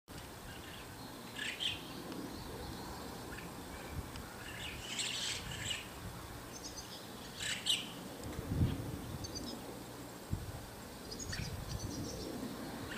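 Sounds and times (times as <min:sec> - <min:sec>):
starling scratchy chirps: 0:06.6 - 0:08.0.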